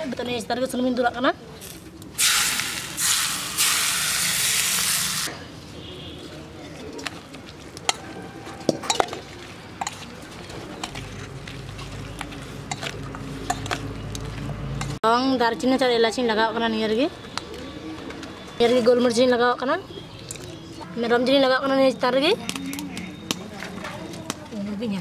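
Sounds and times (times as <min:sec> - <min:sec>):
hot oil sizzling: 0:02.2 - 0:05.3.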